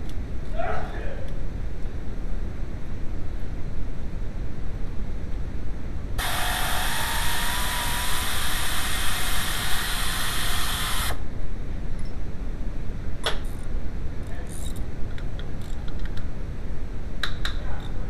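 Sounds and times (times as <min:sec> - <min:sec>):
starter motor whine and grind: 0:06.2 - 0:11.2.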